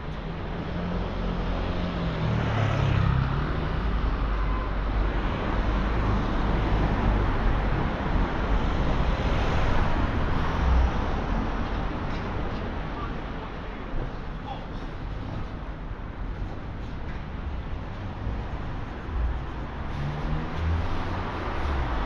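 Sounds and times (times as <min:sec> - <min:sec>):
van and cars driving by: 0:00.0 - 0:22.0
hiss of tyres and engines: 0:19.4 - 0:22.0.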